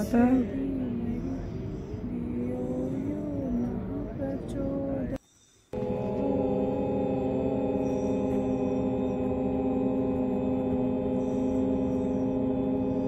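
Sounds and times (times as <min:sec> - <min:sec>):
meditation gong ringing drone: 0:05.8 - 0:13.0.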